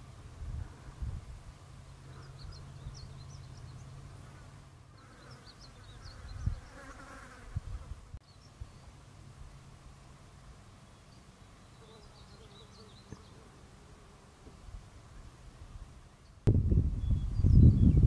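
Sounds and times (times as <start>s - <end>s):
small bird chirping: 1.8s - 4.0s, 4.9s - 7.1s.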